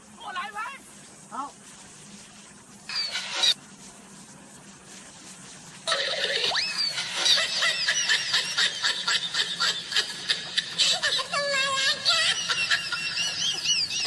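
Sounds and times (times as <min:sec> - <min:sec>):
high-pitched giggling laughter: 0:05.9 - 0:14.0.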